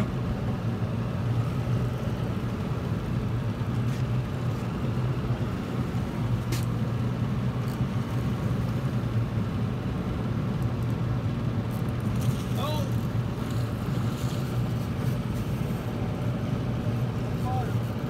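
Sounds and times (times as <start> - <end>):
boat motor humming: 0.0 - 18.0
water noise: 11.3 - 17.6.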